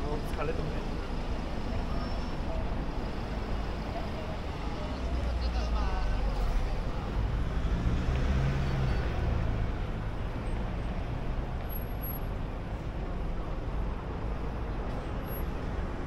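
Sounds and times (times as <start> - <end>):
traffic rumble: 0.0 - 16.0
car passing by: 6.3 - 10.1.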